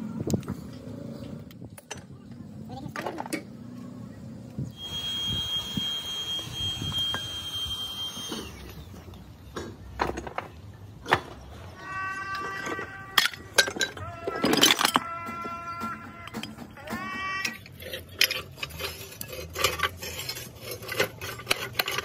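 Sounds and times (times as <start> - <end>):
steady high whine: 4.6 - 9.2
scrap iron clanking on metal: 12.2 - 22.0.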